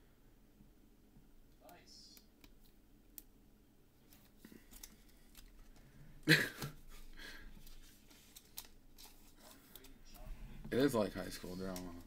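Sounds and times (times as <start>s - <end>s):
trading cards flipping and rustling: 4.0s - 5.8s, 7.6s - 10.2s.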